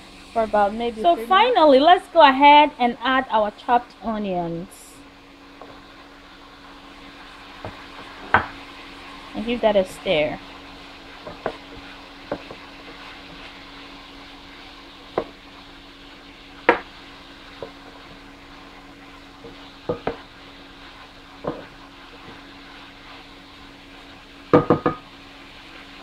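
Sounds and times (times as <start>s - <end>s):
low steady hum: 0.0s - 26.0s
vegetables sizzling in frying pan: 0.0s - 26.0s
wooden spatula knocking on pan: 11.2s - 11.6s, 12.3s - 12.6s, 15.1s - 15.4s, 16.7s - 16.9s, 19.4s - 20.2s, 21.4s - 21.7s, 24.5s - 25.0s.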